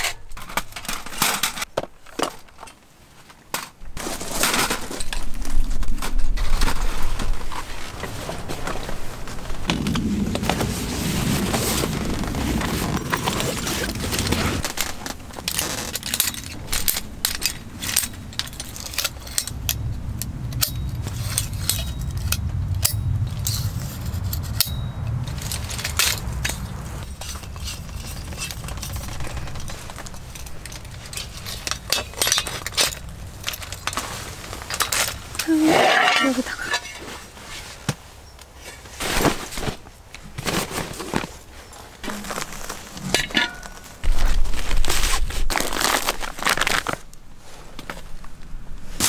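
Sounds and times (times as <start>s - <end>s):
low hum: 8.7s - 35.5s.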